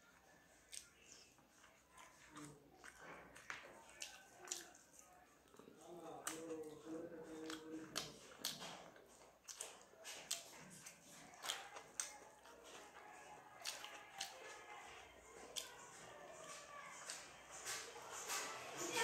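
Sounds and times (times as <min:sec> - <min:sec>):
chewing smacks and clicks: 0:00.1 - 0:19.0.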